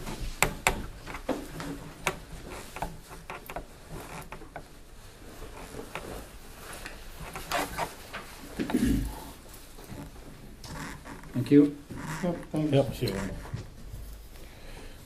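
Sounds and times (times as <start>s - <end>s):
small clicks and knocks: 0.0s - 4.8s.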